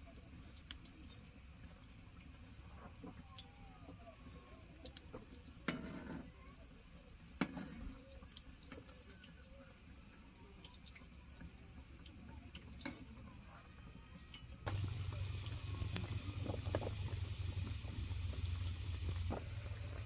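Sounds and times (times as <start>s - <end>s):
food sizzling in oil: 14.7s - 20.0s.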